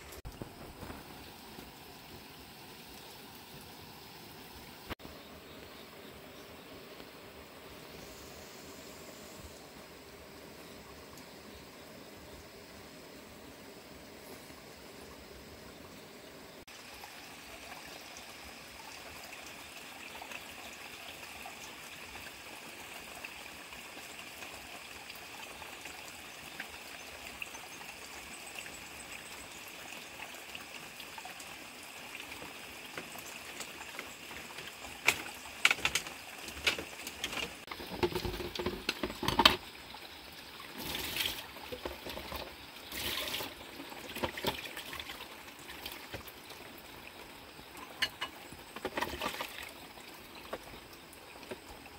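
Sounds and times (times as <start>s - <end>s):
water trickling: 0.0s - 6.6s, 14.4s - 51.9s
bowl clinking in basin: 47.9s - 48.4s.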